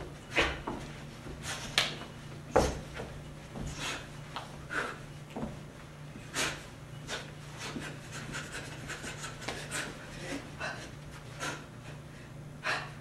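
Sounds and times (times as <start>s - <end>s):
low electrical hum: 0.0s - 13.0s
person breathing sharply: 6.2s - 13.0s.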